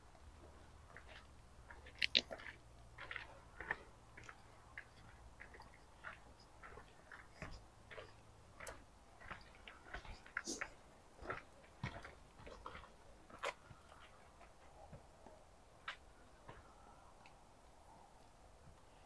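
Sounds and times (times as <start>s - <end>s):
footsteps crunching on stony trail: 0.4s - 15.0s.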